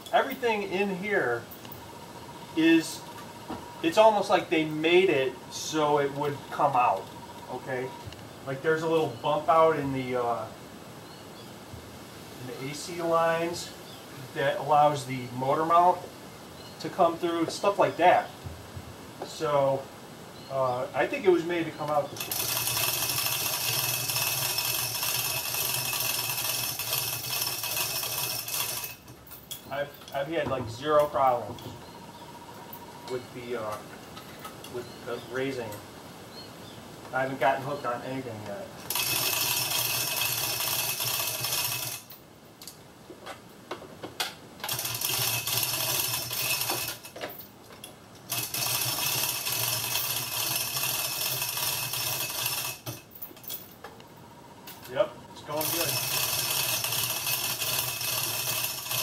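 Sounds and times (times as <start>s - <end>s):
chain hoist rattling and clicking: 22.2s - 30.3s, 38.8s - 42.2s, 44.6s - 47.5s, 48.2s - 53.8s, 55.5s - 59.0s.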